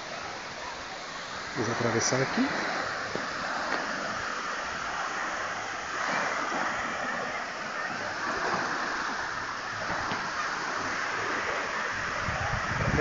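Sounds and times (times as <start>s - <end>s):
sea waves breaking on beach: 0.0s - 13.0s.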